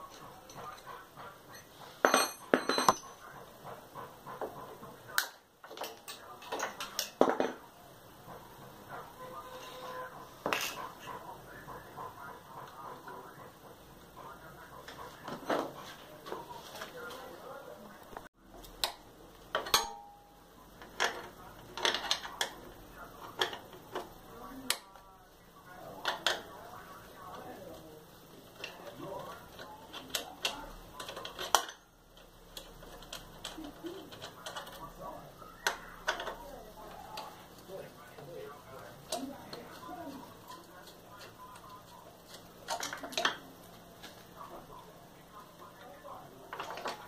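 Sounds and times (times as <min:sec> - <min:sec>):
metal clinks and knocks: 0:01.5 - 0:03.3.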